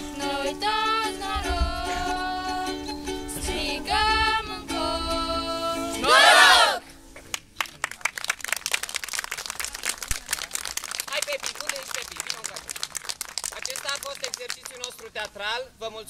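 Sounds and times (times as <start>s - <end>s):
live song with instruments: 0.0s - 6.2s
audience applauding: 7.3s - 15.2s.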